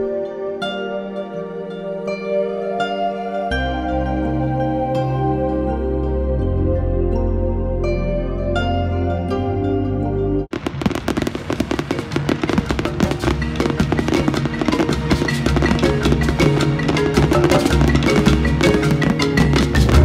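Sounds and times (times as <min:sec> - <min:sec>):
soft melodic background music: 0:00.0 - 0:10.5, 0:11.1 - 0:20.0
fast percussive music: 0:10.6 - 0:20.0.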